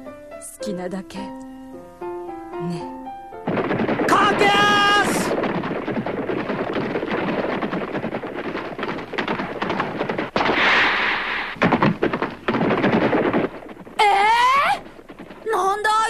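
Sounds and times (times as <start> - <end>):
horses galloping hoofbeats: 3.5 - 10.6, 11.2 - 16.0
brief rushing hiss: 10.4 - 11.6.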